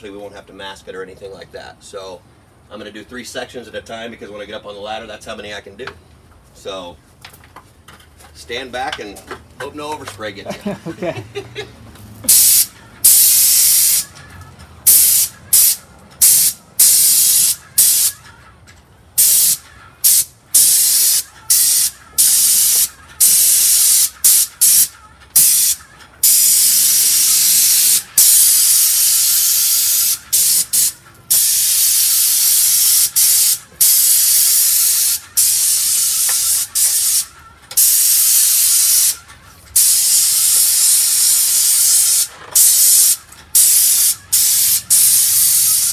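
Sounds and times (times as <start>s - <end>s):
paint spray gun hissing: 12.3s - 14.1s, 14.9s - 18.2s, 19.2s - 39.2s, 39.8s - 45.9s.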